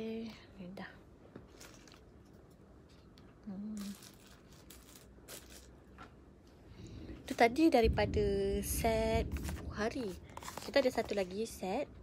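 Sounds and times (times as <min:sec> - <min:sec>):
woman humming: 0:03.4 - 0:04.0
items rustling and knocking: 0:09.2 - 0:11.6.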